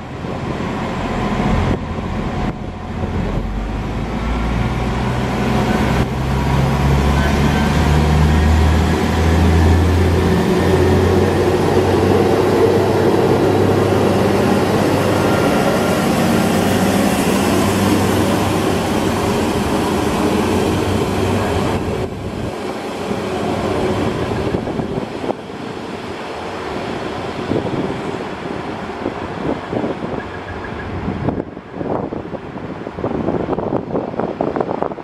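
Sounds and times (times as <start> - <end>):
diesel train engine humming: 0.0 - 31.7.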